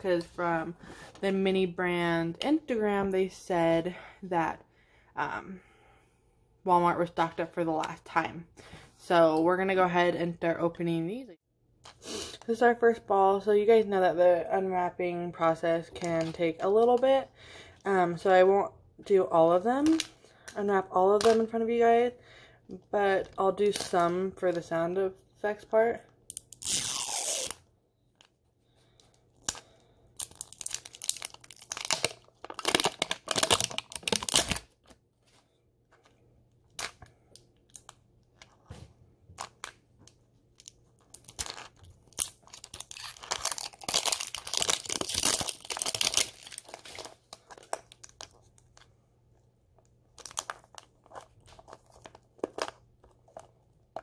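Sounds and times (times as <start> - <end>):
plastic wrapping crinkling and tearing: 29.4 - 34.9, 40.5 - 48.9, 49.8 - 53.5.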